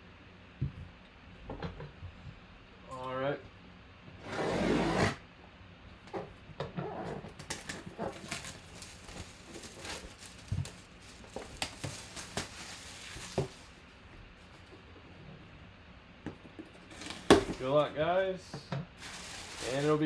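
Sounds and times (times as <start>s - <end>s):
plastic wrap ripping: 7.4s - 13.7s, 19.0s - 20.0s
plastic crinkling: 7.4s - 13.8s, 19.0s - 20.0s.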